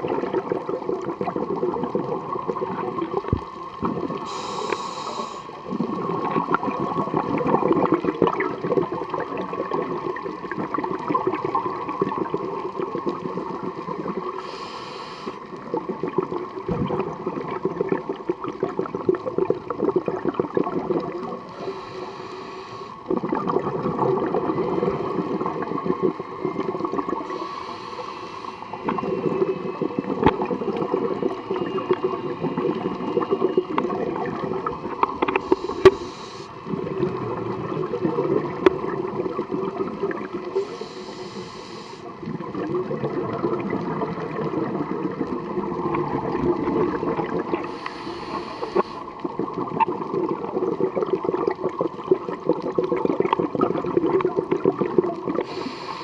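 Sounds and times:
exhaled air bubbling: 0:00.0 - 0:56.0
regulator hissing inhales: 0:04.2 - 0:05.6, 0:14.4 - 0:15.5, 0:21.5 - 0:23.0, 0:27.2 - 0:28.8, 0:35.4 - 0:36.7, 0:40.6 - 0:42.1, 0:47.6 - 0:49.1, 0:55.4 - 0:56.0.

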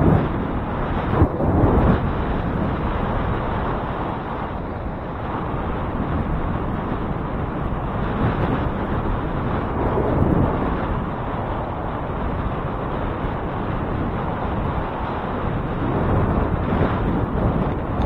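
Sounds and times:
low road and traffic rumble: 0:00.0 - 0:18.0
wind rushing over microphone: 0:00.0 - 0:18.0.

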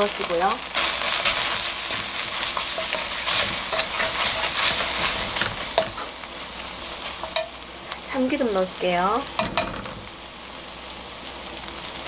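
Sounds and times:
rice sizzling in a pan: 0:00.0 - 0:12.0
wooden spatula scraping pan: 0:00.8 - 0:07.5.

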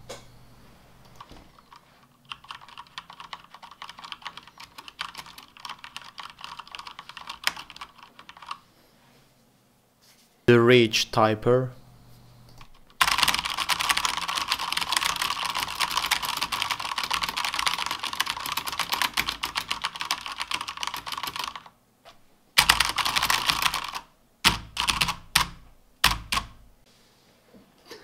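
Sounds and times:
fast typing on keyboard: 0:01.2 - 0:08.6, 0:12.9 - 0:21.7, 0:22.6 - 0:26.6.

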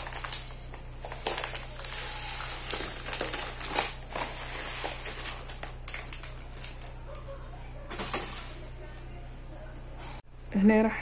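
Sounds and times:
grains pattering onto plate: 0:00.0 - 0:07.0
plastic packet crinkling: 0:00.0 - 0:07.2, 0:07.9 - 0:08.6.

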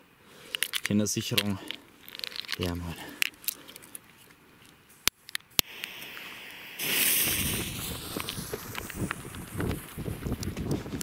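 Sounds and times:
lighter flame hissing: 0:05.6 - 0:10.5
firework fuse sputtering hiss: 0:05.6 - 0:11.0.

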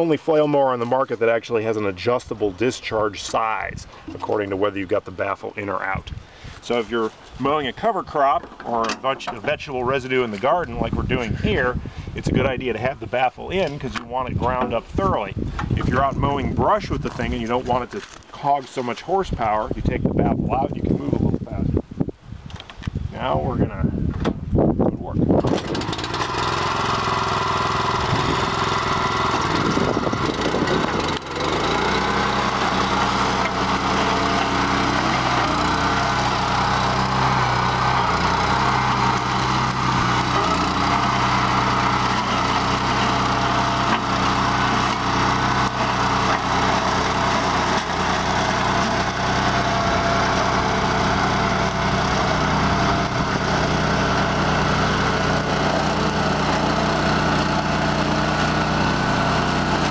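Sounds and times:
flail mower cutting vegetation: 0:00.0 - 0:19.5, 0:25.4 - 0:59.9
tractor engine at full throttle: 0:05.8 - 0:17.8, 0:25.4 - 0:59.9.

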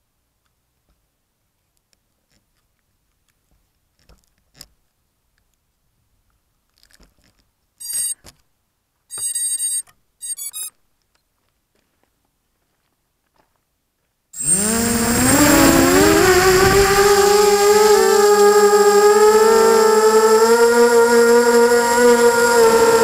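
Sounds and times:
electronic beeps: 0:07.8 - 0:08.2, 0:09.1 - 0:10.7.

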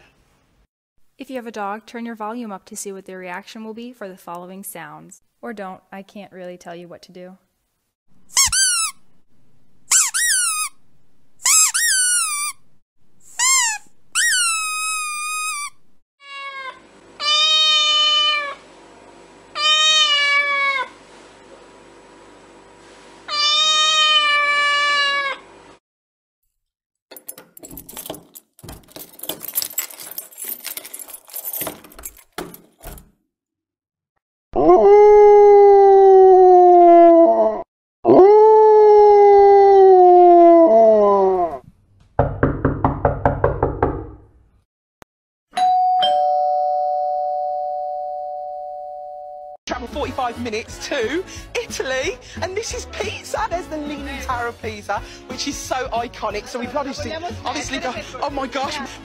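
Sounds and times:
high squeaks: 0:08.3 - 0:09.0, 0:09.9 - 0:10.8, 0:11.4 - 0:12.6, 0:13.3 - 0:15.8
cat meowing: 0:16.2 - 0:18.6, 0:19.6 - 0:21.0, 0:23.3 - 0:25.4.

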